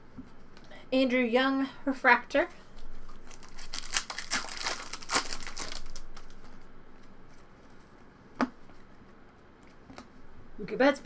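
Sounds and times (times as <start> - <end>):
handling of cards: 2.7 - 10.3
card pack wrapper crinkling: 2.8 - 7.1.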